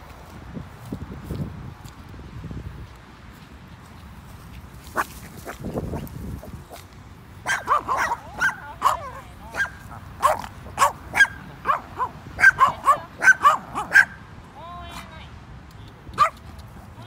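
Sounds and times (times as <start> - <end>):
small dog barking and yipping: 7.4 - 14.2, 16.2 - 16.4.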